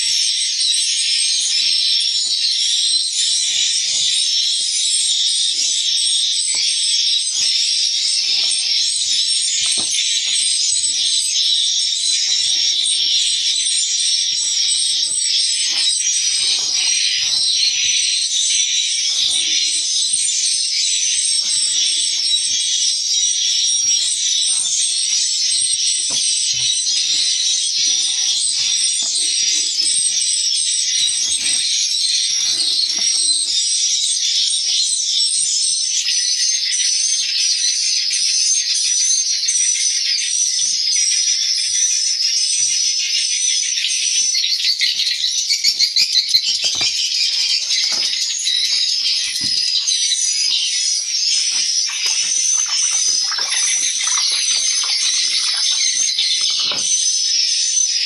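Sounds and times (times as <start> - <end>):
swiftlets chirping: 5.4 - 33.7.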